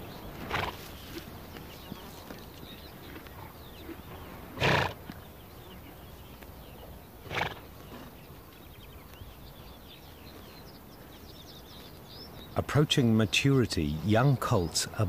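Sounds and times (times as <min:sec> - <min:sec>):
horse snorting: 0:00.3 - 0:01.3, 0:03.0 - 0:05.2, 0:07.2 - 0:08.0.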